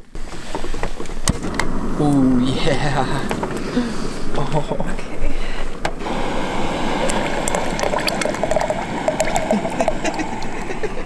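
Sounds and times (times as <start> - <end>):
steady hiss: 0.0 - 11.0
soup gurgling while poured: 6.0 - 11.0.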